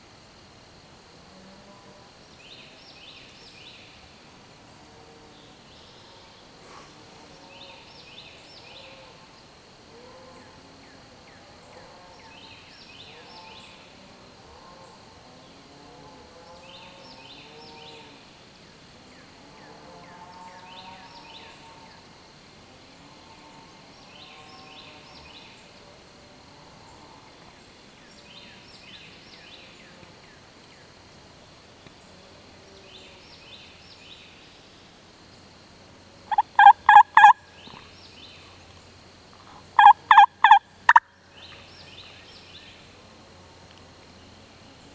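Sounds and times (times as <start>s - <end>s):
turkey gobbling: 36.3s - 37.4s, 39.8s - 41.0s.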